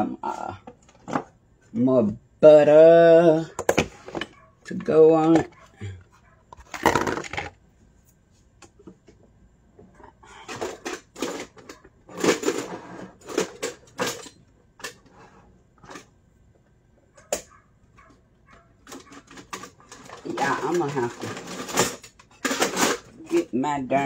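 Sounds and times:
kitchen utensils knocking and clattering: 10.4s - 15.0s, 18.5s - 23.6s.

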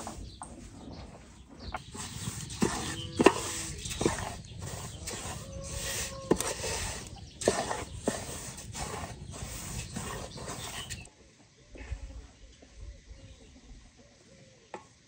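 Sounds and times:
spatula stirring dry grains: 1.8s - 11.1s.

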